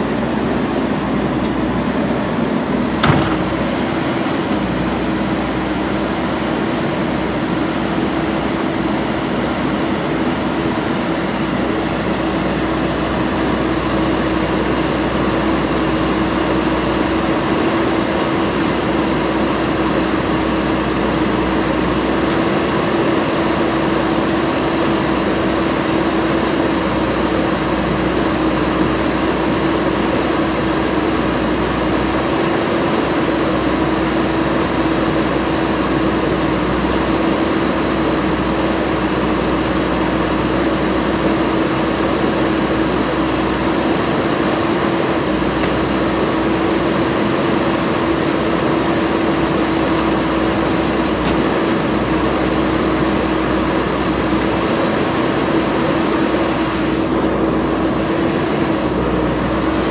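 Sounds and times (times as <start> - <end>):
diesel engine running: 0.0 - 59.9
backhoe arm digging: 1.0 - 5.6, 41.9 - 53.2.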